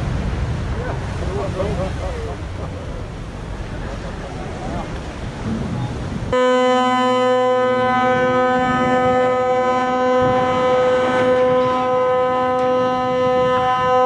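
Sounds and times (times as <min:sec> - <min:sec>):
rushing water: 0:00.0 - 0:14.0
ship's horn long blast: 0:05.8 - 0:14.0.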